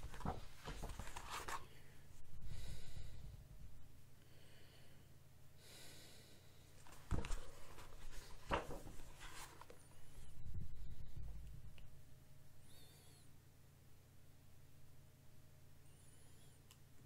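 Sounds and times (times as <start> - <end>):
book pages rustling: 0.0 - 1.8, 6.8 - 10.0
low steady hum: 0.0 - 17.0.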